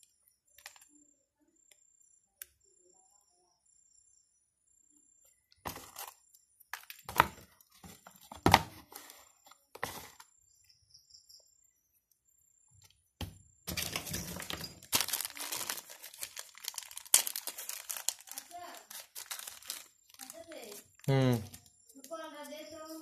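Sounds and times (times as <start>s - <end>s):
plastic packet crinkling: 13.7s - 21.6s.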